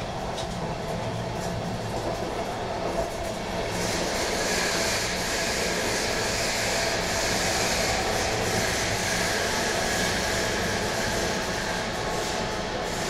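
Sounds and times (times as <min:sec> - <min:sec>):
train wheels rolling on rails: 0:00.0 - 0:13.0
hiss: 0:03.7 - 0:13.0.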